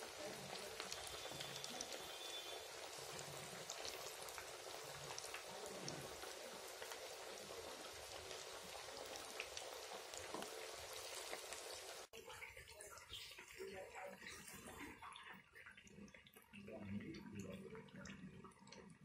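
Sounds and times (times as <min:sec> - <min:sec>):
food deep-frying in oil: 0:00.0 - 0:19.0.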